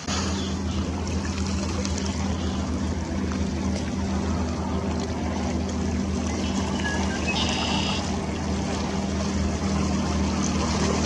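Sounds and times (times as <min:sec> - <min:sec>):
low motor drone: 0:00.0 - 0:11.0.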